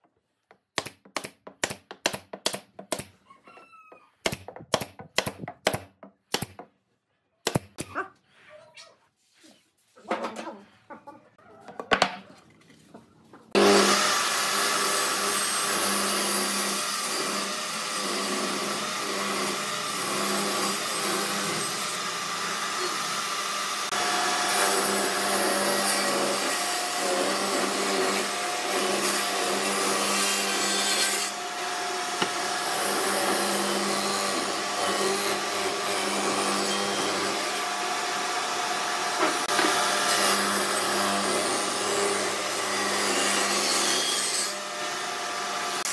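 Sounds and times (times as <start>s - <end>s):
table saw cutting wood: 13.5s - 45.9s.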